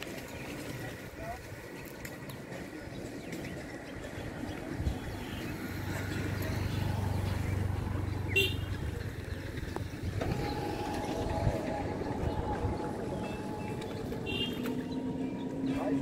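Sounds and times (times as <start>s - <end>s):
low engine hum: 0.0s - 16.0s
higher-pitched drone: 10.2s - 16.0s.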